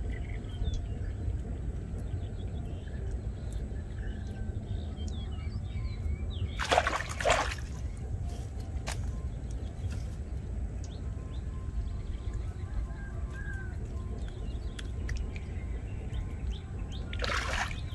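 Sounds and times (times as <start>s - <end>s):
small birds chirping: 0.0s - 17.9s
hands splashing in water: 6.6s - 7.8s, 17.2s - 17.9s.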